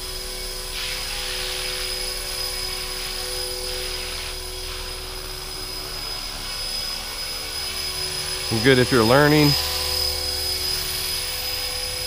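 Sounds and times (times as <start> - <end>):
rc helicopter rotor whine: 0.0 - 12.0
hiss: 0.7 - 5.1.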